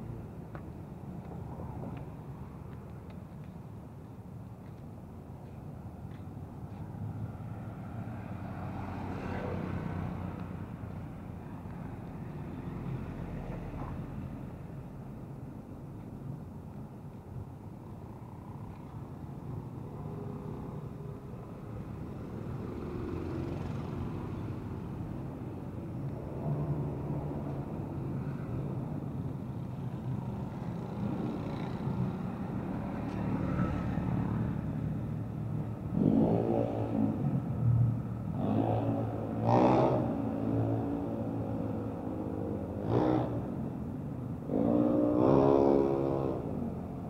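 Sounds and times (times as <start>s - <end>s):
road traffic rumble: 0.0s - 47.0s
engine passing by: 7.0s - 14.6s, 19.8s - 47.0s.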